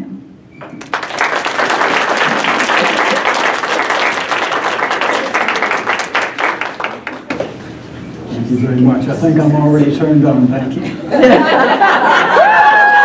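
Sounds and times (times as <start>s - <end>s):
audience applauding: 0.7s - 7.5s.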